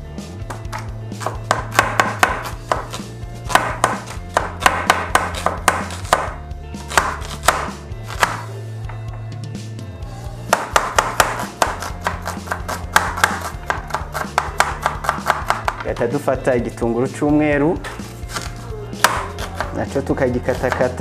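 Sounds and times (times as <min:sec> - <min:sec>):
low background music: 0:00.0 - 0:21.0
knife chopping on cutting board: 0:00.4 - 0:08.5, 0:10.5 - 0:16.1, 0:18.0 - 0:21.0.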